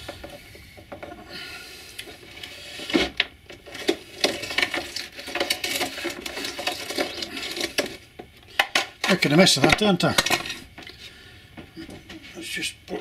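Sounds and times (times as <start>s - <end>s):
grit rattling through a spreader: 1.2s - 10.7s.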